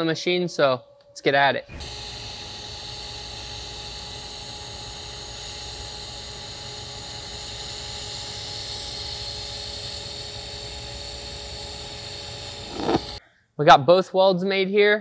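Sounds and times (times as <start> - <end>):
welding arc hissing: 1.8 - 13.2.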